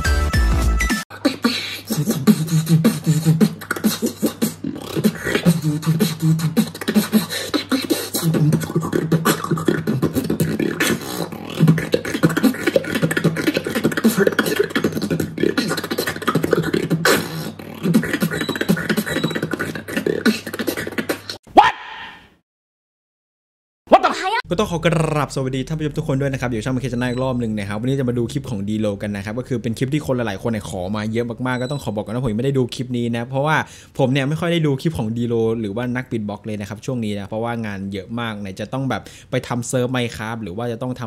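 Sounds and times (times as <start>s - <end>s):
beatboxing: 0.8s - 22.1s, 24.0s - 28.5s.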